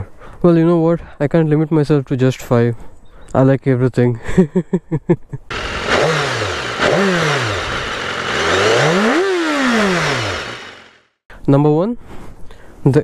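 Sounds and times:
motorcycle engine revving: 5.5s - 11.1s.

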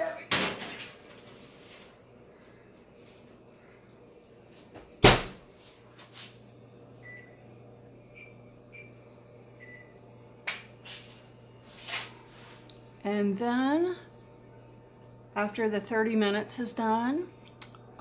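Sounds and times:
steady low hum: 0.9s - 18.0s.

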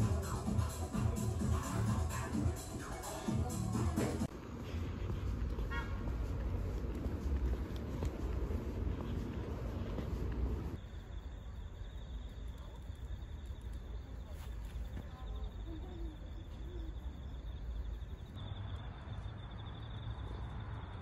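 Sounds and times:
crickets chirping: 0.0s - 21.0s
footsteps on a path: 4.3s - 10.8s, 14.2s - 15.2s.

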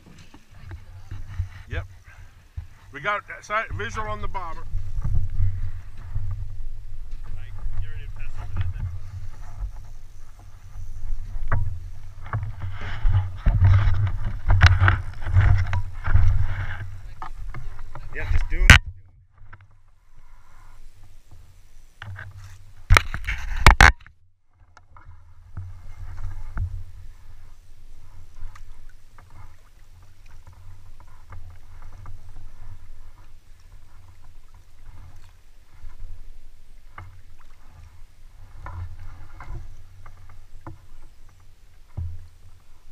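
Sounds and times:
water rushing: 0.0s - 18.8s
water splashing against boat hull: 0.0s - 42.9s
wind buffeting: 0.6s - 18.8s.

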